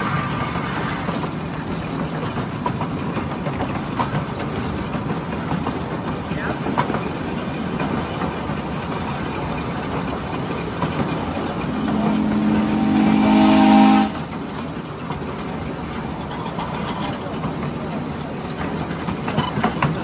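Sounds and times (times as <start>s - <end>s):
train wheels clattering on track: 0.0s - 20.0s
locomotive chime whistle: 11.7s - 14.2s, 17.4s - 18.4s.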